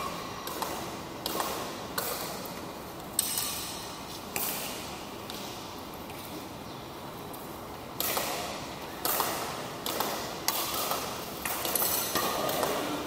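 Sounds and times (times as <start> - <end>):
racket striking shuttlecock: 0.0 - 2.6, 8.0 - 13.0.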